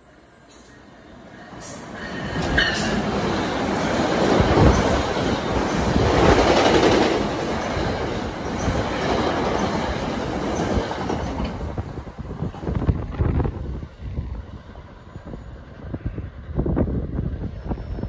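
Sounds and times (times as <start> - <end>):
train wheels on rails: 0.4 - 18.0.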